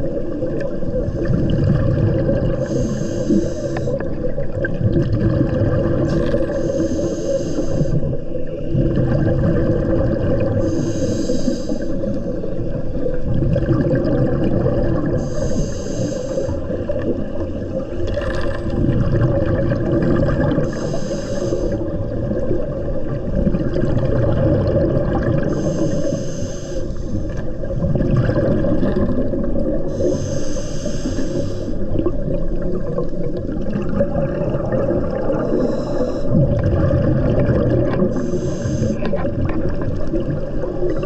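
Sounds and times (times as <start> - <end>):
low underwater rumble: 0.0 - 7.2, 7.8 - 41.0
diver breathing through regulator: 2.5 - 4.1, 6.1 - 8.2, 10.4 - 12.5, 15.0 - 16.9, 20.5 - 22.0, 25.4 - 27.5, 29.8 - 32.0, 35.2 - 36.6, 38.0 - 39.2.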